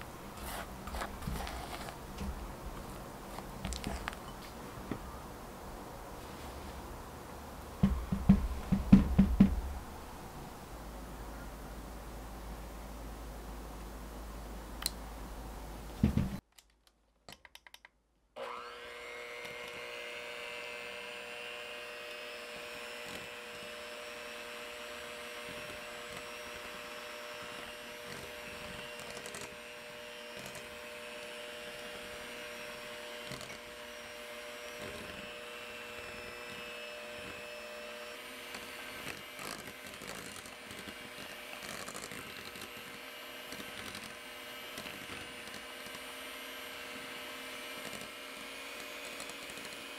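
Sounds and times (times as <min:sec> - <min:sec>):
electric hand mixer whipping batter: 0:18.4 - 0:49.9.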